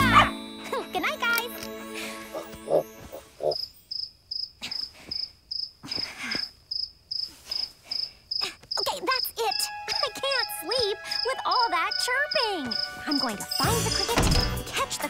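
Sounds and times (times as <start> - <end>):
cartoon cricket chirping: 2.4 - 14.1.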